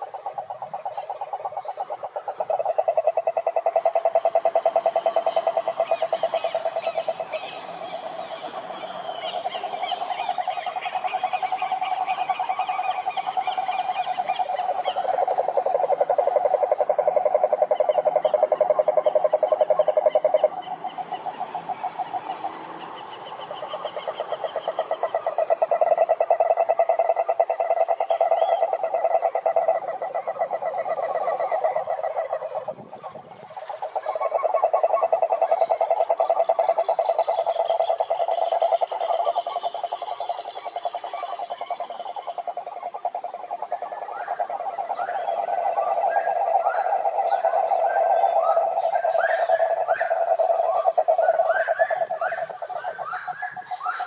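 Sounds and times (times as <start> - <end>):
toads trilling in chorus: 0.0 - 54.0.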